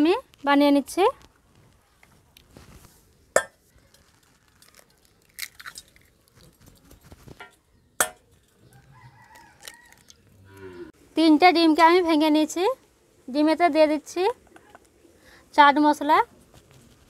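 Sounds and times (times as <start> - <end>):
eggshell crackling: 3.4 - 10.4.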